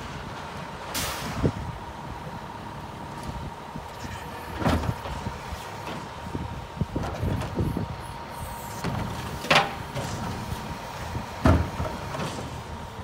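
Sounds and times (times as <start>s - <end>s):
garbage truck engine running: 0.0s - 13.0s
garbage cart banging on hopper: 11.4s - 12.7s.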